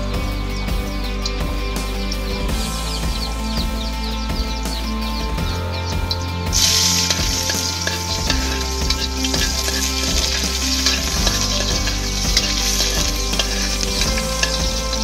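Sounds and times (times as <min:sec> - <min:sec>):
meat sizzling in hot oil: 0:06.6 - 0:15.0.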